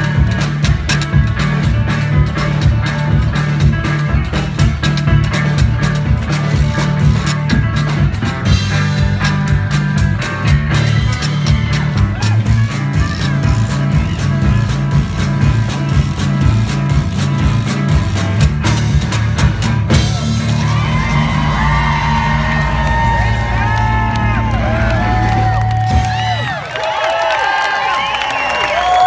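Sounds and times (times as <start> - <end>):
live blues band playing: 0.0 - 26.5
crowd cheering and whooping: 19.9 - 29.0.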